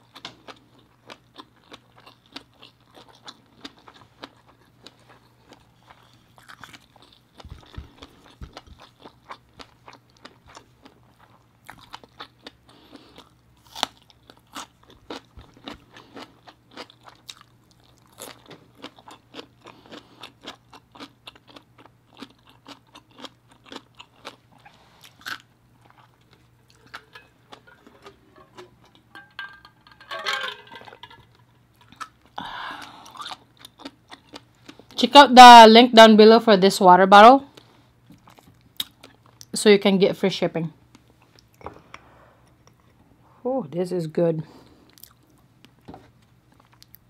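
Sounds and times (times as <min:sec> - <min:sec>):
chewing crunching cucumber: 0:00.0 - 0:29.2, 0:31.0 - 0:35.0, 0:37.5 - 0:39.5, 0:44.8 - 0:47.0.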